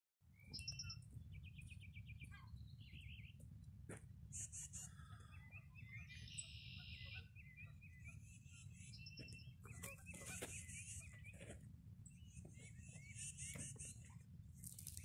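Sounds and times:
birds chirping and trilling: 0:00.3 - 0:15.0.

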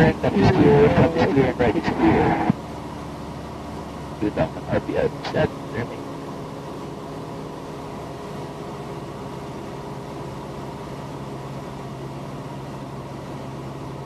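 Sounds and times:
constant hiss: 0:00.0 - 0:02.6, 0:04.2 - 0:06.0
airplane engine drone: 0:00.0 - 0:14.0.

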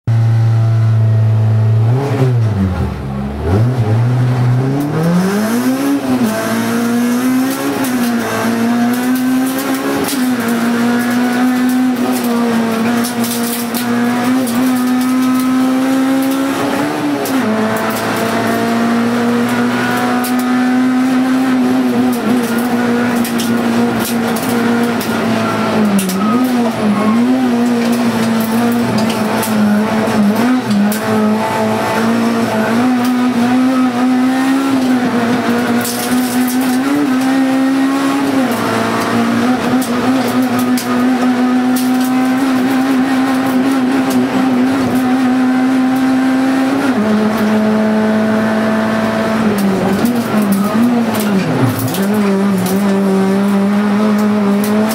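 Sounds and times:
car engine revving: 0:00.0 - 0:54.9.

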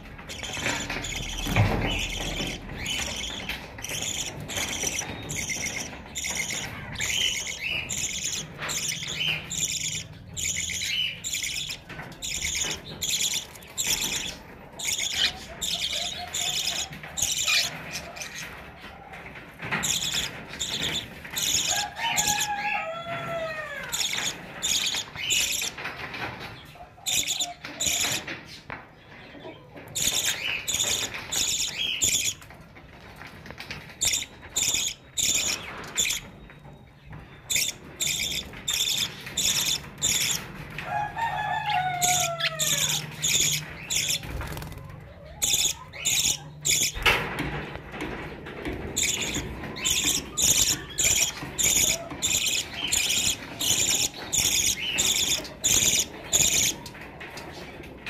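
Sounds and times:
budgerigars chattering: 0:00.2 - 0:18.6, 0:19.8 - 0:22.4, 0:23.9 - 0:25.9, 0:27.0 - 0:28.3, 0:29.4 - 0:32.4, 0:34.0 - 0:36.3, 0:37.5 - 0:40.5, 0:42.0 - 0:47.2, 0:48.9 - 0:56.8.

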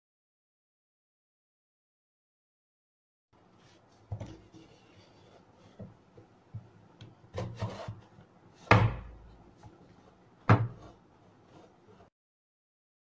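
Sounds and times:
wooden boards knocking: 0:08.7 - 0:09.3, 0:10.5 - 0:10.9.

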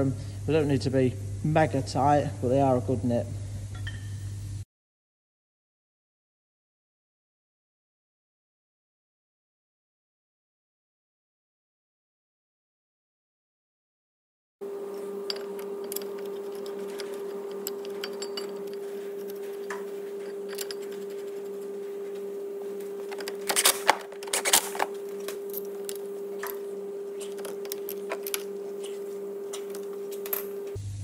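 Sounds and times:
steady electrical hum: 0:00.0 - 0:04.6, 0:14.6 - 0:31.0
metal tools clattering: 0:14.8 - 0:30.8.

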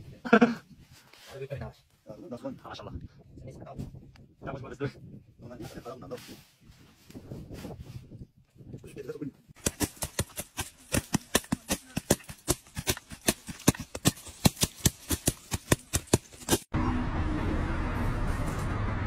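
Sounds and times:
sharp knocks on sunflower heads: 0:09.6 - 0:16.7.

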